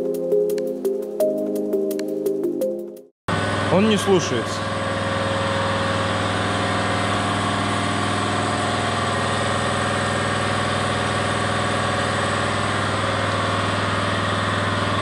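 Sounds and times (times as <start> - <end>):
motor droning hum: 3.3 - 15.0.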